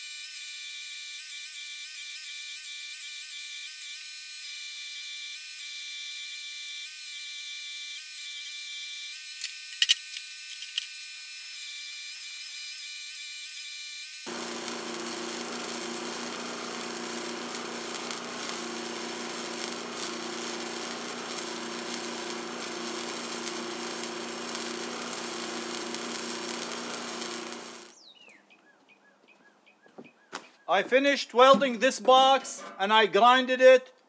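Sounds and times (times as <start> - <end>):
welding arc crackling: 0.0 - 28.0
steady hum: 14.3 - 27.9.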